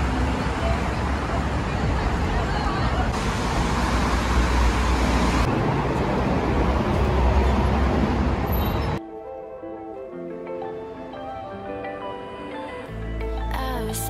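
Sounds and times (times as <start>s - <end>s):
street traffic rumble: 0.0s - 9.0s.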